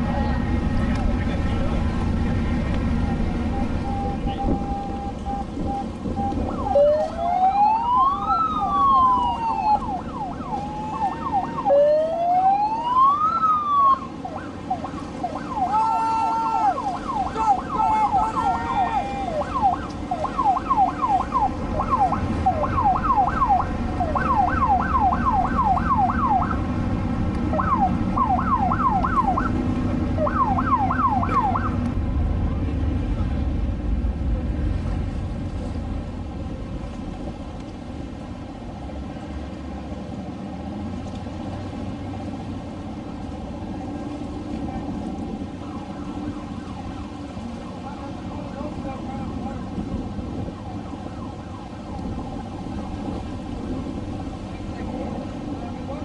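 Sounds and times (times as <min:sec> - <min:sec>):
boat engines: 0:00.0 - 0:56.0
wind rumble: 0:00.0 - 0:56.0
electronic siren wailing and yelping: 0:03.8 - 0:26.6, 0:27.5 - 0:29.6, 0:30.2 - 0:31.8.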